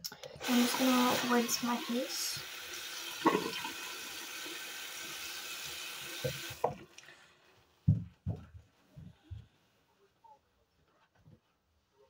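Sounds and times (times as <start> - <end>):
tap running: 5.6 - 6.9.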